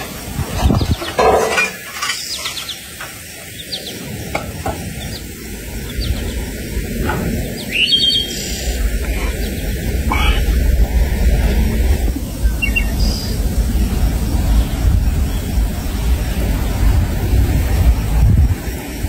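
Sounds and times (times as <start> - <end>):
metal shovel scraping in ash: 0.6 - 2.8.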